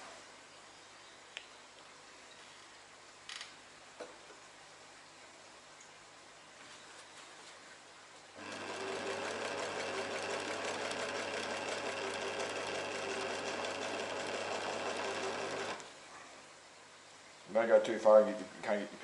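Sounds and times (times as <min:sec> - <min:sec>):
sewing machine stitching: 0:08.4 - 0:15.8.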